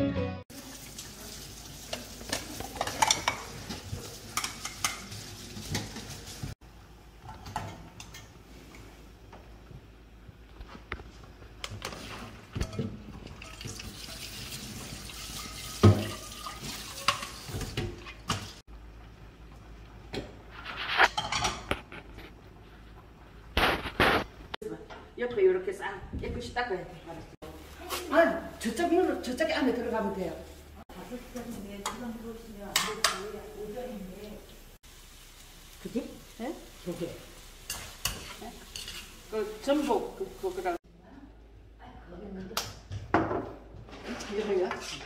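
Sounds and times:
bowls and dishes clattering: 1.9s - 6.2s, 15.3s - 18.6s
spatula scraping frying pan: 37.6s - 40.1s.

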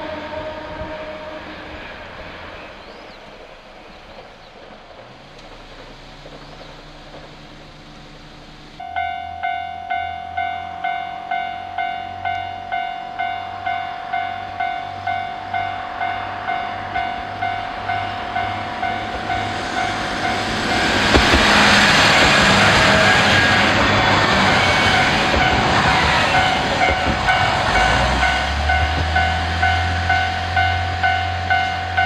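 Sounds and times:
level-crossing alarm dinging: 8.8s - 32.0s
train wheels clattering past: 15.1s - 32.0s.

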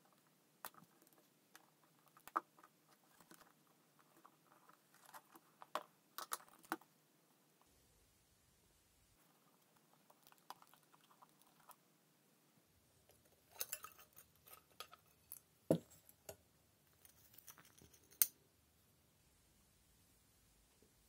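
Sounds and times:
metal and glass parts scraping: 13.5s - 15.4s.

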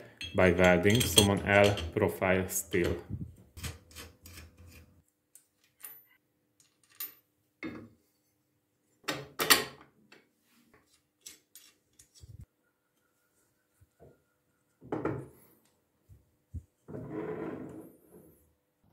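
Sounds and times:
steel parts clinking and knocking: 0.0s - 2.0s.

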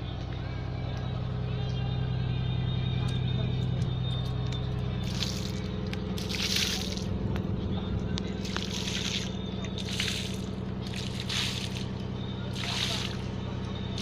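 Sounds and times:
boat engine running: 0.0s - 14.0s
water splashing: 5.0s - 7.1s, 8.4s - 13.3s.

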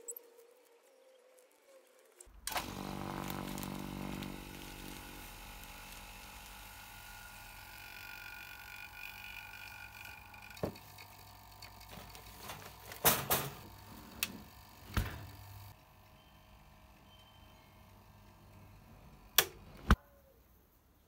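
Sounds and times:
oven rack and door clattering: 11.9s - 13.7s.

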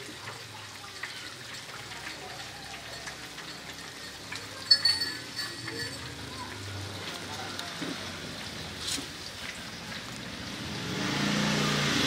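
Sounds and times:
broth simmering and bubbling: 0.0s - 12.0s
sharp metallic clink: 3.8s - 6.1s.

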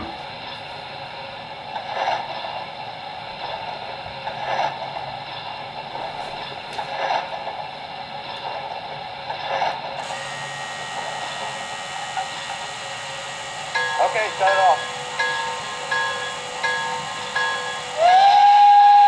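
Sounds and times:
model locomotive steam hiss: 9.5s - 19.0s.

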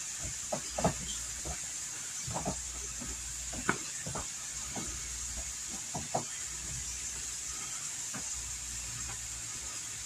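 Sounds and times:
steady hiss: 0.0s - 10.0s
small taps and clicks: 0.2s - 6.9s.

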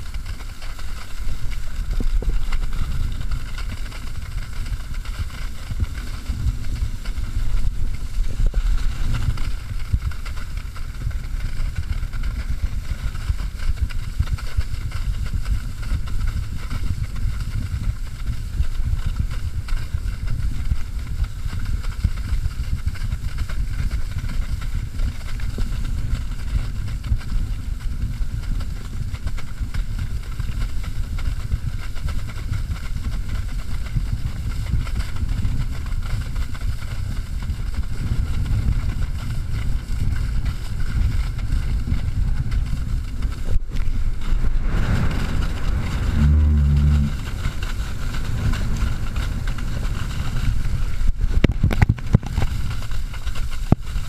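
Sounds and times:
water skis hissing through water: 0.0s - 14.9s, 39.4s - 54.0s
wind buffeting microphone: 0.0s - 54.0s
brief low hum: 44.1s - 50.2s.

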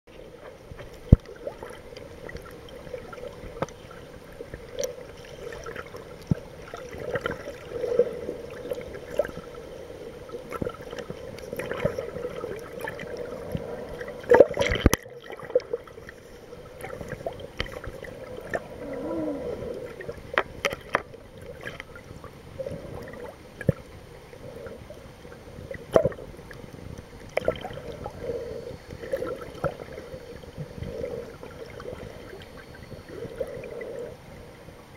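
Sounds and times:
small underwater clicks and knocks: 0.1s - 9.5s, 10.3s - 18.7s, 19.8s - 23.9s, 25.6s - 28.2s
muffled underwater water wash: 0.1s - 34.9s.

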